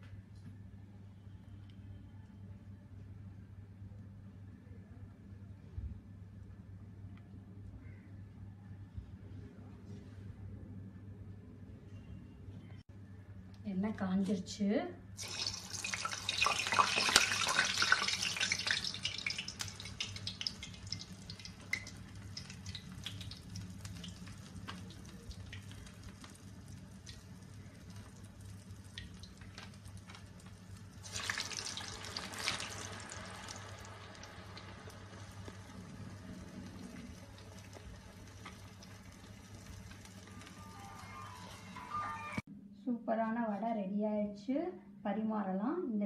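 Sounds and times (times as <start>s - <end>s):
fritters sizzling in hot oil: 15.2s - 41.5s.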